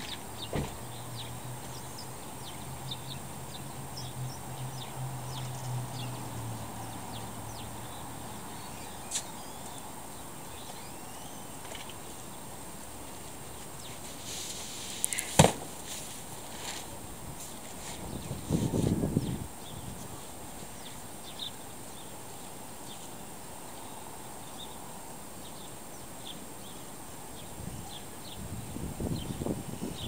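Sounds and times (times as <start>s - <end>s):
small birds chirping: 0.0s - 30.0s.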